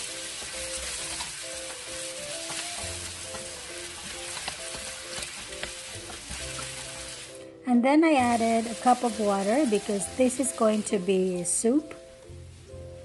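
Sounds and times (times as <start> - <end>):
clams sizzling in a pan: 0.0 - 7.4, 8.2 - 12.8
soft background music: 0.0 - 13.0
utensil clicking against pan: 2.5 - 6.7.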